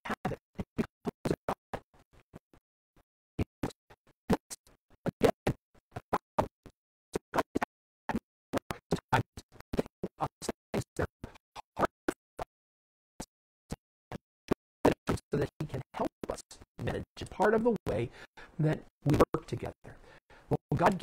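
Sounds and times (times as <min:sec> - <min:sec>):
man's chopped up speech: 0:15.1 - 0:21.0.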